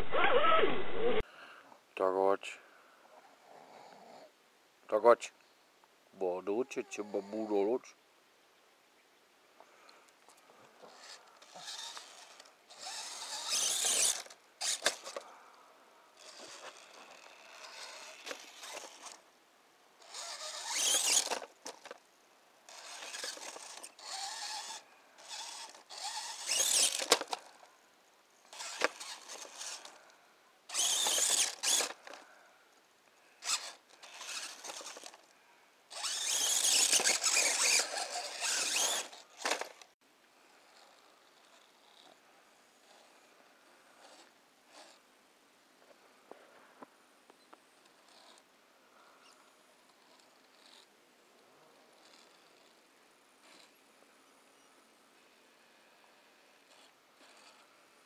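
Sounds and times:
rc car motor whining: 0:00.0 - 0:01.2, 0:10.8 - 0:15.4, 0:16.1 - 0:19.2, 0:20.0 - 0:22.0, 0:22.7 - 0:27.7, 0:28.4 - 0:32.4, 0:33.4 - 0:35.3, 0:35.9 - 0:39.9, 0:40.6 - 0:42.2, 0:42.8 - 0:45.0, 0:47.8 - 0:48.4, 0:49.0 - 0:50.9, 0:51.8 - 0:52.8, 0:53.4 - 0:53.8, 0:55.6 - 0:57.9.

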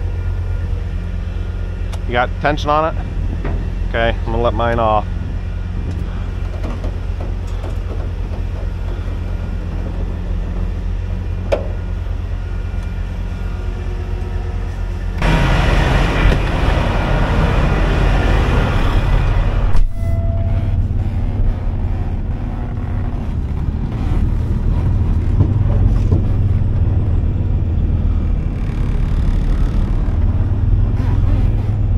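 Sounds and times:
diesel engine running: 0:00.0 - 0:31.9
rushing noise: 0:15.0 - 0:31.9.

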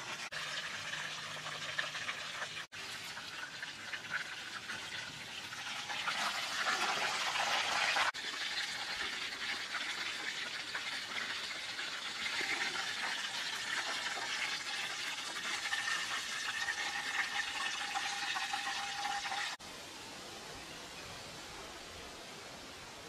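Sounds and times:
deep-frying sizzle: 0:00.0 - 0:19.6
background hiss: 0:19.6 - 0:23.0.

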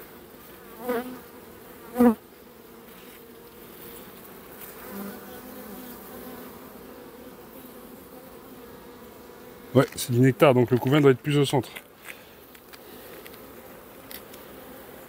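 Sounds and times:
bee buzzing past: 0:00.0 - 0:15.0
bees humming: 0:00.0 - 0:15.0.

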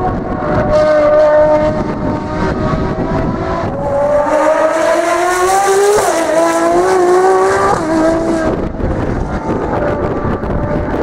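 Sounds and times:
race car engine accelerating: 0:00.0 - 0:11.0.

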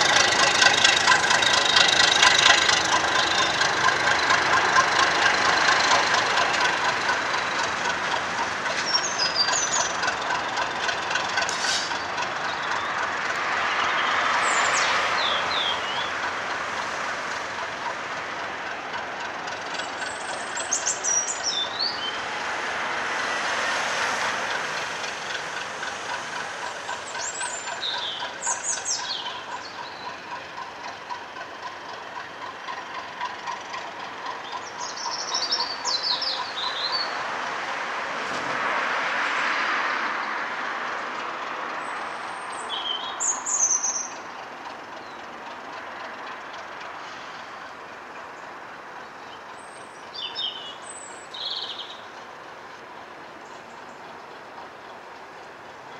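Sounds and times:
diesel locomotive engine running: 0:00.0 - 0:55.9
small birds chirping: 0:08.7 - 0:10.2, 0:11.8 - 0:16.2, 0:19.8 - 0:22.3, 0:27.0 - 0:30.5, 0:33.7 - 0:37.2, 0:41.8 - 0:44.4, 0:48.2 - 0:52.2.

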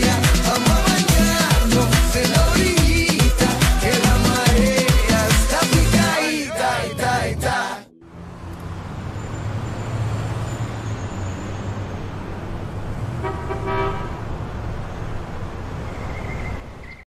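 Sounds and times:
horn-like tone: 0:13.2 - 0:14.1.

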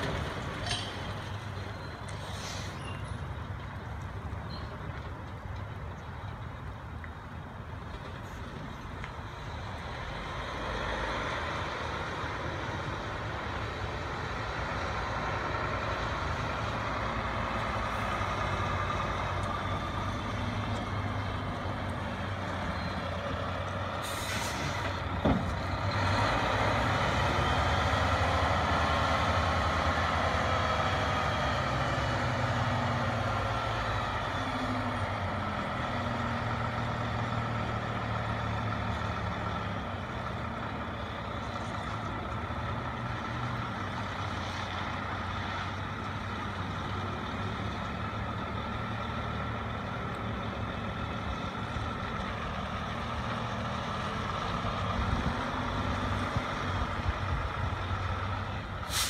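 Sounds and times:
air brake hiss: 0:02.2 - 0:03.0, 0:24.0 - 0:24.8
truck diesel engine running: 0:09.4 - 0:59.0.

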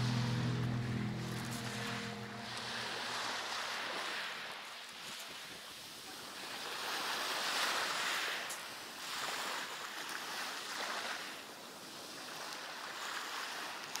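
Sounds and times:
sea waves on a pebble beach: 0:00.0 - 0:14.0.

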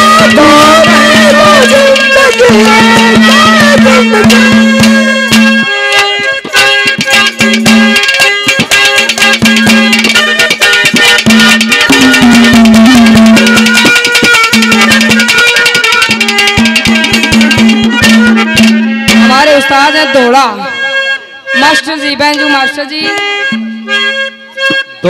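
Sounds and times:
fast hand-drum strokes: 0:00.0 - 0:19.6
held melody line: 0:00.0 - 0:25.0.

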